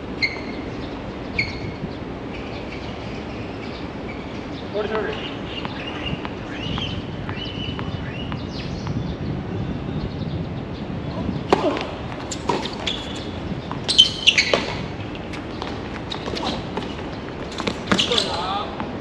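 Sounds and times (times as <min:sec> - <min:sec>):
tennis ball bouncing: 0:05.6 - 0:09.0, 0:11.4 - 0:18.9
tennis racket hitting ball: 0:11.5 - 0:18.4.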